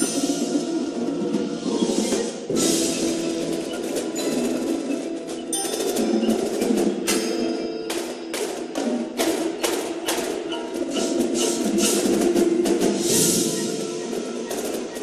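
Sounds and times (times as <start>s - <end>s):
marching drums striking accents: 0.0s - 15.0s
marimbas playing chords: 2.3s - 9.6s.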